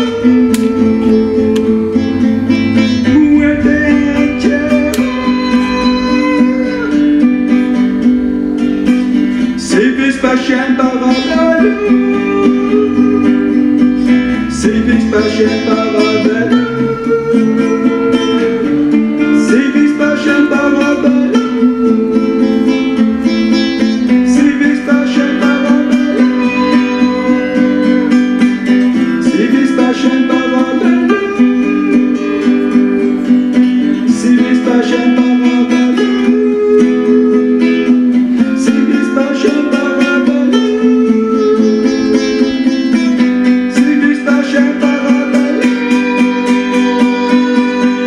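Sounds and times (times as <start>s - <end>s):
low drone: 0.0s - 9.6s, 11.8s - 19.0s
plucked string melody: 0.0s - 48.0s.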